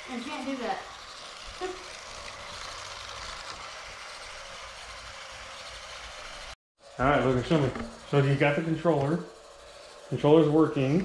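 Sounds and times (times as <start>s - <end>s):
small electric motors whirring: 0.0s - 11.0s.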